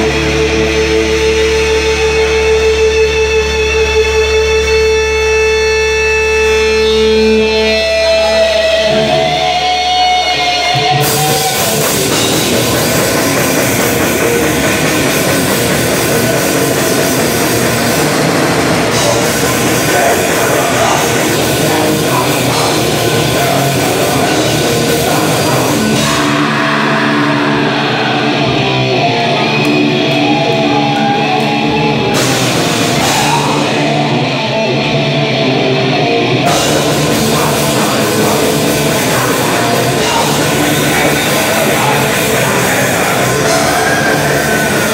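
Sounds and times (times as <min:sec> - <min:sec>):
metal band playing: 0:00.0 - 0:44.9
vocalist singing: 0:08.1 - 0:29.6, 0:30.4 - 0:34.8, 0:36.4 - 0:44.9.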